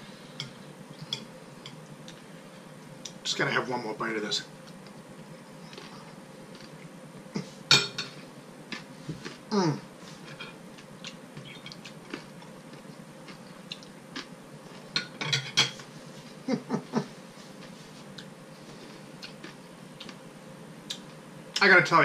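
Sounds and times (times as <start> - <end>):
cutlery clinking on a plate: 15.0 - 15.8.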